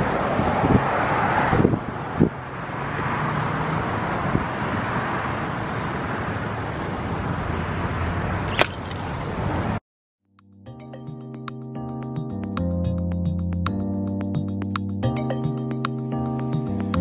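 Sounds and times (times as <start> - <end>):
wind on microphone: 0.0 - 2.5, 4.1 - 5.2
outdoor traffic noise: 0.0 - 9.8.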